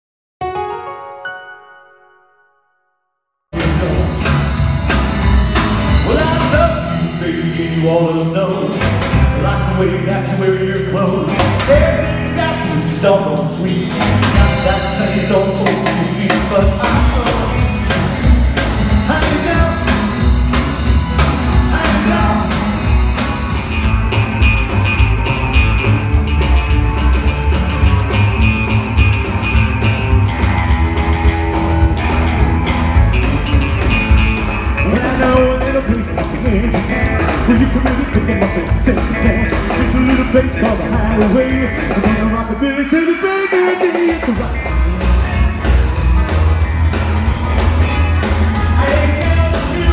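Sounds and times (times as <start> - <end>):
rockabilly band playing: 3.5 - 49.9
person singing: 3.6 - 4.5, 6.0 - 20.2, 21.1 - 23.0, 34.8 - 46.6, 47.3 - 49.9.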